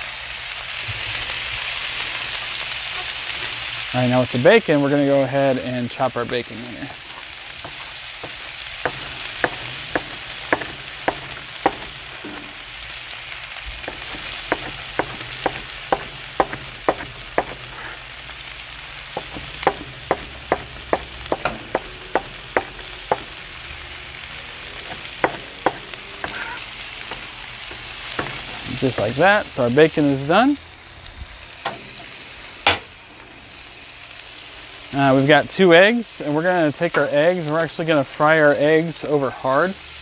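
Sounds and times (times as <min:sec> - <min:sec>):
potatoes sizzling on griddle: 0:00.0 - 0:40.0
knife chopping on cutting board: 0:07.6 - 0:12.5, 0:13.9 - 0:17.9, 0:19.2 - 0:23.4, 0:24.8 - 0:27.2.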